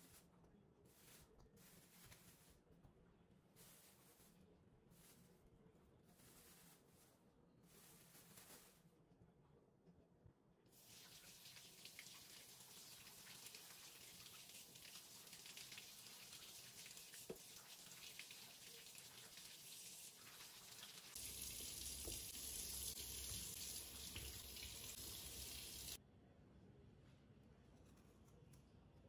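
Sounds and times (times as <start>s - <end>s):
tap water running into sink: 10.8s - 26.0s.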